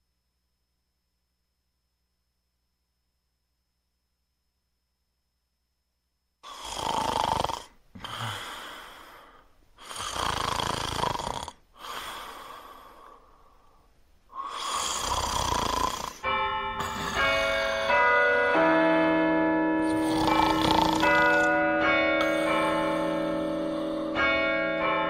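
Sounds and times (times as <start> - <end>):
loud snoring: 6.4 - 8.9, 9.8 - 12.6, 14.4 - 17.9, 19.8 - 21.6, 22.2 - 24.2
breath out: 8.0 - 10.3, 11.8 - 15.4, 19.8 - 21.6, 22.2 - 24.4
bell chimes ringing: 16.2 - 25.0.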